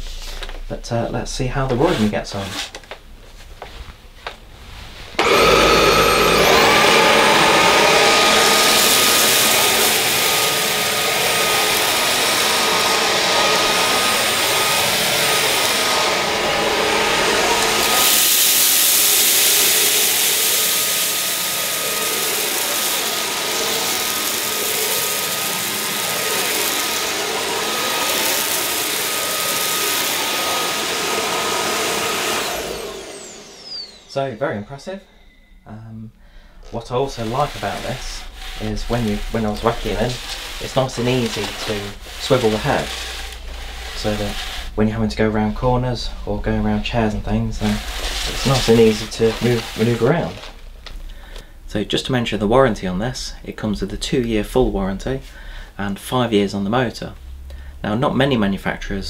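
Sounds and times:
vacuum sucking oats and rice: 0:05.1 - 0:34.7, 0:36.6 - 0:51.5
stick vacuum motor whine: 0:05.2 - 0:35.7, 0:36.3 - 0:51.5.

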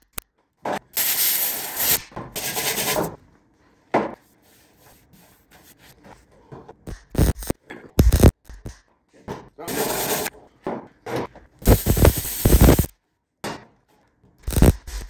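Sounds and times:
mig welder tack-welding: 0:01.0 - 0:02.1, 0:07.1 - 0:08.4, 0:11.6 - 0:12.9, 0:14.4 - 0:15.0.

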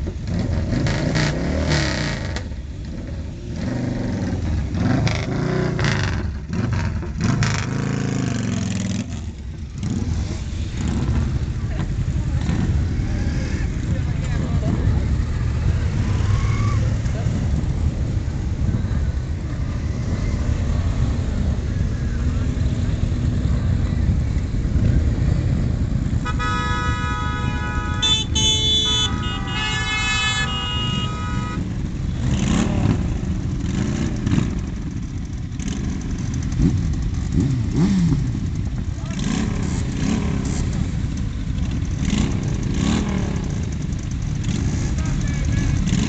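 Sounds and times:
engines revving: 0:00.0 - 0:46.0
motorcycle engines idling: 0:02.1 - 0:46.0
vehicle horn honking: 0:26.2 - 0:31.7.

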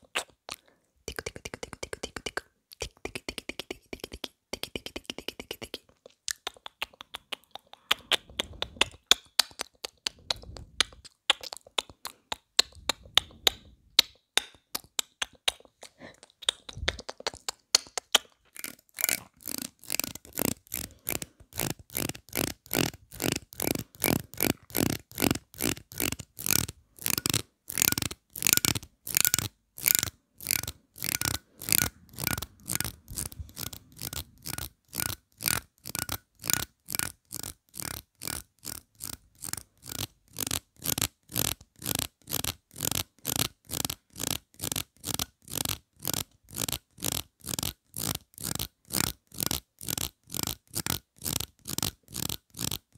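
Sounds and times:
plastic comb scraping: 0:18.1 - 0:52.9.

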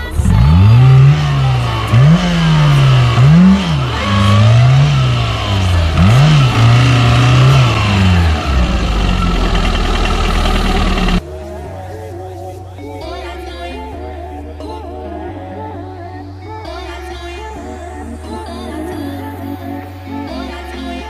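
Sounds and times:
car engine revving: 0:00.0 - 0:11.2.

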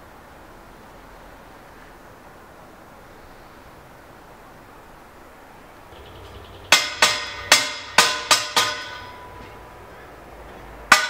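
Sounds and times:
sharp metallic clanks: 0:05.9 - 0:09.7, 0:10.5 - 0:11.0.

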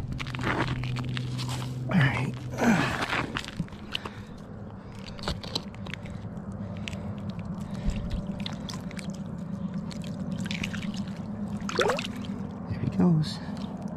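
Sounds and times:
steady low hum: 0:00.0 - 0:13.9
water sloshing and splashing: 0:05.4 - 0:13.9.

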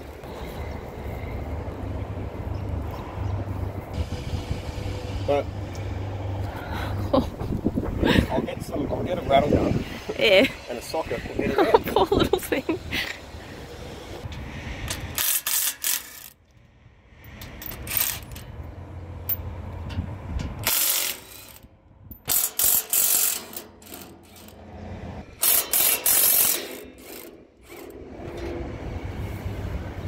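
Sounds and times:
impact wrench hammering: 0:20.6 - 0:21.6, 0:22.2 - 0:24.5, 0:25.4 - 0:28.0.

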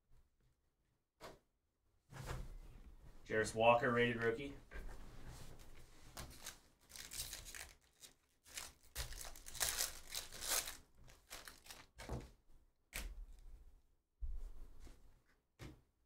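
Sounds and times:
foil wrapper crinkling and tearing: 0:06.2 - 0:12.1.

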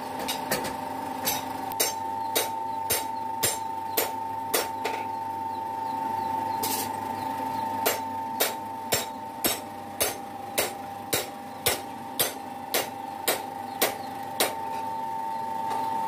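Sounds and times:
forge blower whining: 0:00.0 - 0:16.0
hammer striking hot steel: 0:00.2 - 0:05.0, 0:07.8 - 0:14.6.

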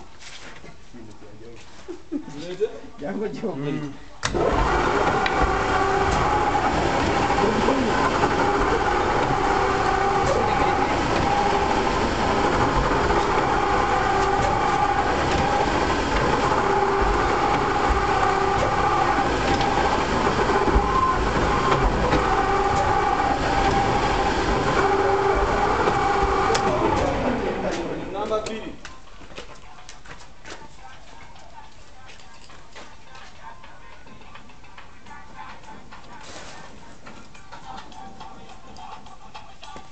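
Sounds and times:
press machine droning: 0:04.2 - 0:28.8.

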